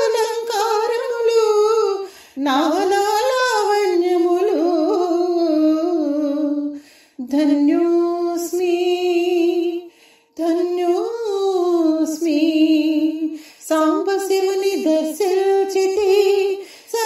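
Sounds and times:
woman singing a hymn: 0:00.0 - 0:17.0.

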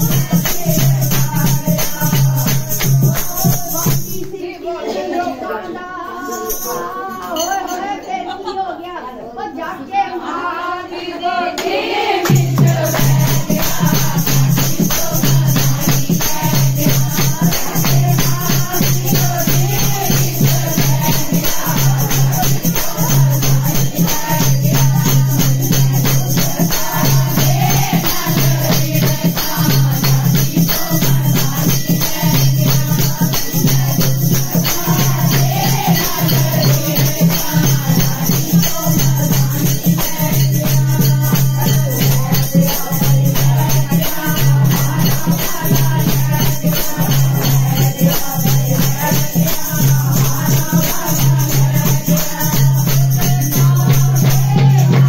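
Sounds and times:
rattling percussion: 0:00.0 - 0:04.6, 0:06.1 - 0:08.2, 0:11.6 - 0:55.0
women singing devotional song: 0:00.0 - 0:55.0
hand-clapping: 0:11.6 - 0:20.0.

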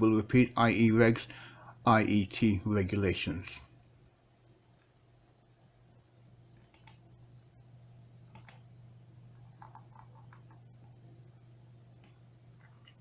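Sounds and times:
steady low hum: 0:00.0 - 0:13.0
computer mouse clicks: 0:06.6 - 0:07.1, 0:08.3 - 0:08.6, 0:09.5 - 0:10.7.

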